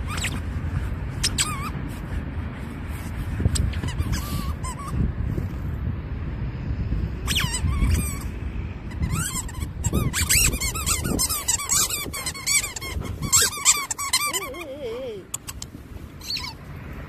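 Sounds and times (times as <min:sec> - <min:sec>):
dog squealing and whining: 0:00.0 - 0:00.4, 0:01.2 - 0:01.8, 0:03.7 - 0:05.0, 0:07.2 - 0:08.3, 0:08.9 - 0:15.6, 0:16.2 - 0:16.6
paws scraping in sand: 0:00.0 - 0:05.8.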